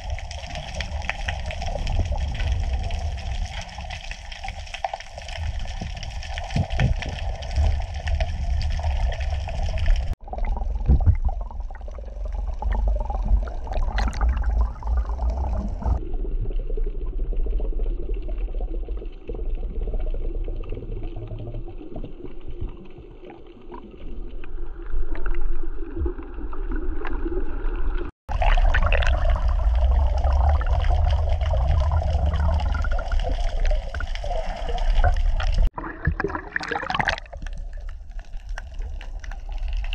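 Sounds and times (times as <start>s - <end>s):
underwater water gurgling: 0.0s - 39.9s.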